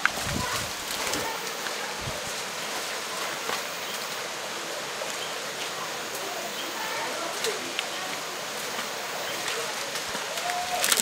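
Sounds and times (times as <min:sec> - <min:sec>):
dry branches and leaves rustling: 0:00.0 - 0:04.4, 0:07.3 - 0:11.0
twigs crackling and snapping: 0:09.9 - 0:11.0.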